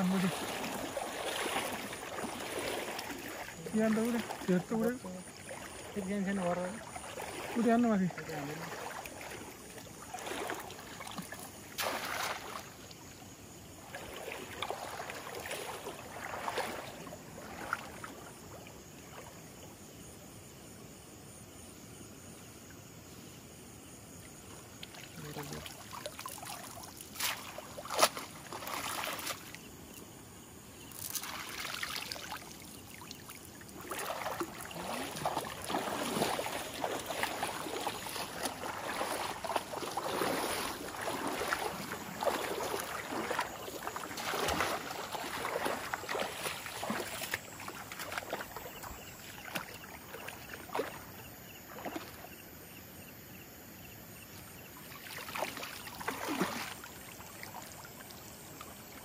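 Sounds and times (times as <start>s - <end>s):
water dripping: 0.0s - 13.0s, 30.9s - 50.9s
shallow water splashing: 0.0s - 19.7s, 24.1s - 52.4s, 54.6s - 59.0s.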